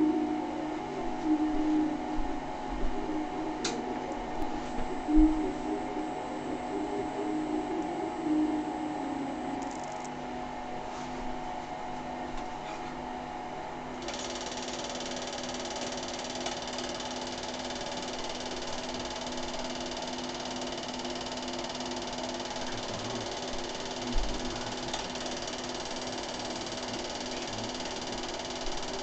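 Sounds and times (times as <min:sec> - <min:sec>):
small machine clattering: 0:14.0 - 0:29.0.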